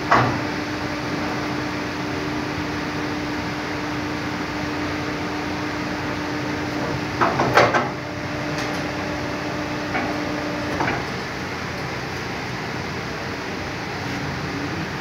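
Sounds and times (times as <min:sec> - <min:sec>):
hydraulic unit humming: 0:00.0 - 0:15.0
loud knocks and clatter: 0:06.9 - 0:08.0.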